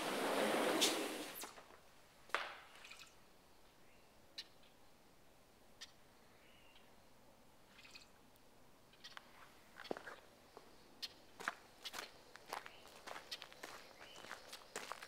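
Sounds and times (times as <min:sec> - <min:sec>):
short bird chirps: 0:02.7 - 0:03.2, 0:07.7 - 0:08.2.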